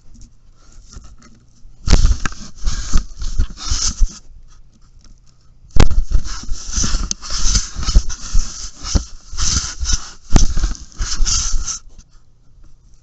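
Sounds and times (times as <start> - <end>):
bear scratching camera case: 1.9 - 4.2, 5.8 - 11.9.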